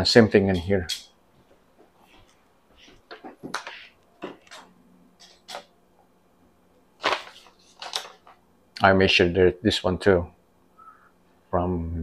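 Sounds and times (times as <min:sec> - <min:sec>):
faint steady hum: 0:00.0 - 0:12.0
paper rustling: 0:07.0 - 0:08.4.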